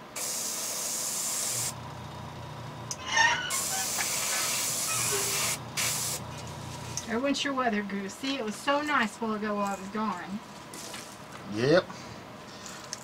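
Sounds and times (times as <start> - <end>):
airbrush spraying hiss: 0.0 - 1.8, 3.5 - 6.9.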